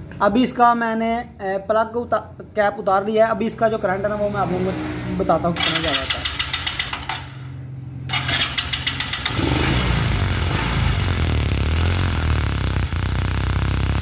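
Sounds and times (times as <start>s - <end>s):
motorcycle engine running: 5.6s - 7.3s, 8.1s - 14.0s
rapid ignition ticking: 5.6s - 7.4s, 8.1s - 14.0s.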